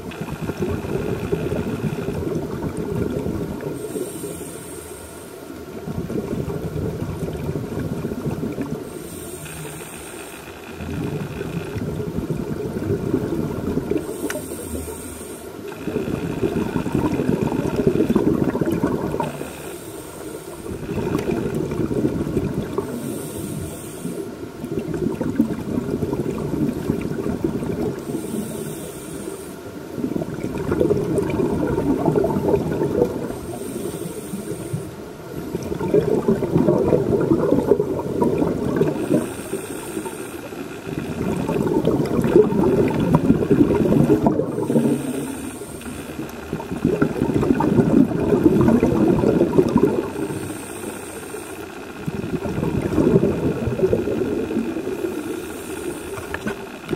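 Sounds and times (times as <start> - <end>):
hissing regulator inhalation: 3.8 - 5.6, 8.8 - 11.8, 13.9 - 24.4, 26.8 - 30.1, 30.8 - 56.9
bubbling exhalation: 15.8 - 19.5, 20.8 - 23.0, 30.0 - 33.5, 35.4 - 39.3, 40.9 - 45.5, 46.2 - 50.6, 52.1 - 55.3.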